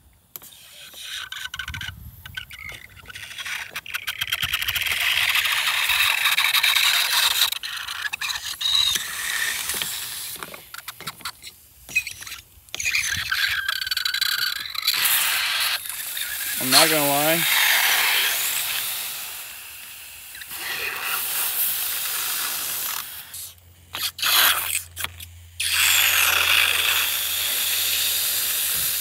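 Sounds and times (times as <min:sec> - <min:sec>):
steady hiss: 0:14.4 - 0:23.9.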